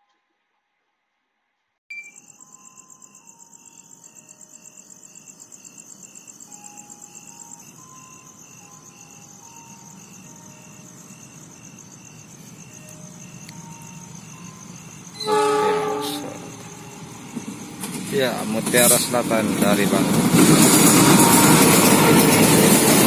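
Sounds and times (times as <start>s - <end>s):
crickets chirping: 1.9s - 23.0s
train rumble: 6.4s - 23.0s.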